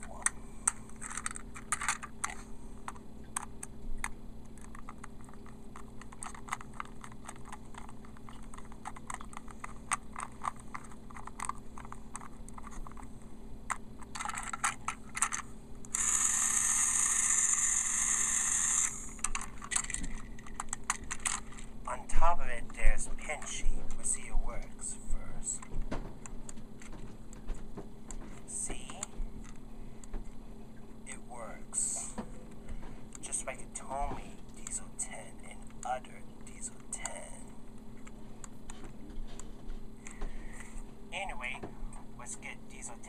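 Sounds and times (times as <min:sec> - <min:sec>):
plastic parts clicking and scraping: 0:00.0 - 0:21.8.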